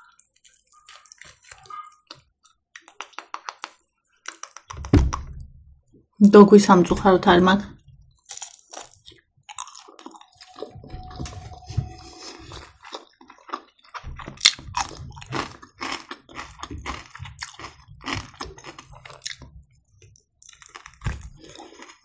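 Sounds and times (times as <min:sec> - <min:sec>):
wet chewing mouth clicks: 0:00.0 - 0:04.8, 0:12.4 - 0:19.5.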